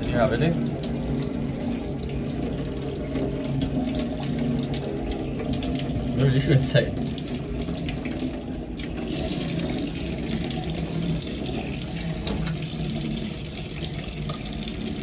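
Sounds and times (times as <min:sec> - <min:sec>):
tap water running into sink: 0:00.0 - 0:15.0.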